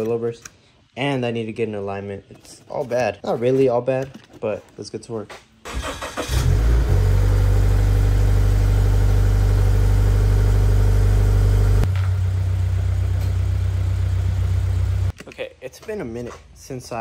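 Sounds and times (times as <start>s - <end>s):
car engine starting and idling: 5.6s - 15.1s.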